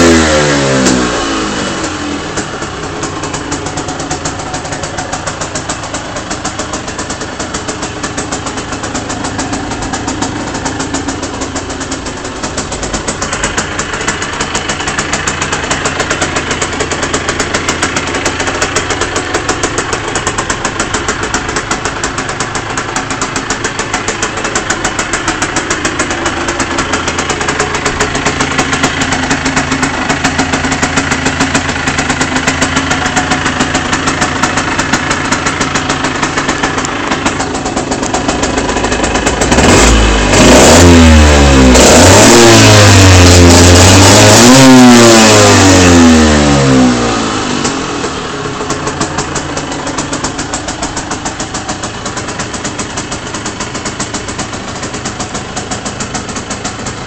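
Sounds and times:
motorcycle engine idling and revving: 0.0s - 57.0s.

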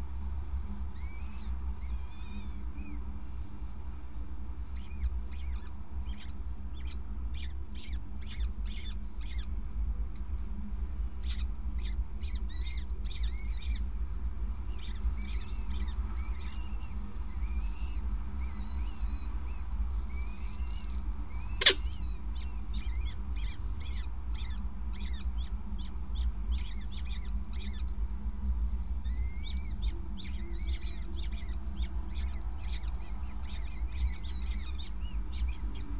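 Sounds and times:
falcon chicks cheeping: 14.7s - 28.0s, 29.0s - 35.9s.

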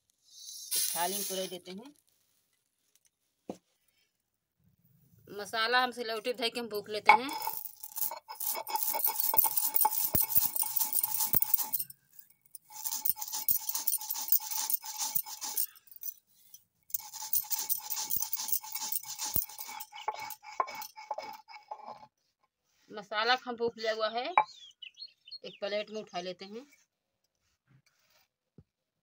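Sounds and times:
stone roller grinding spices: 0.7s - 1.6s, 6.1s - 16.2s, 16.9s - 22.2s.

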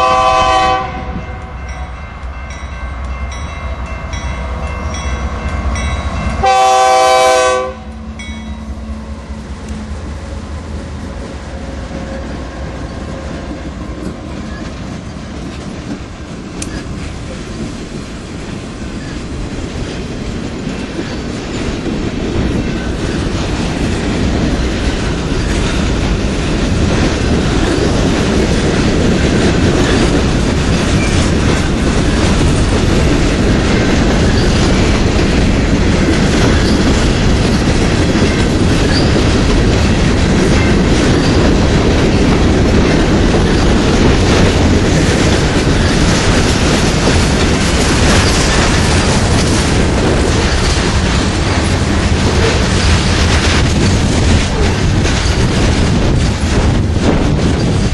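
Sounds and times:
freight train rumble: 0.0s - 57.9s
wheels clattering over rail joints: 18.6s - 57.9s.

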